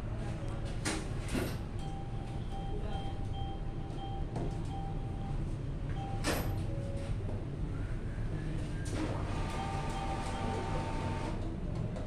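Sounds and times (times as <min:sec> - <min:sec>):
short faint beeps: 0:01.8 - 0:07.2.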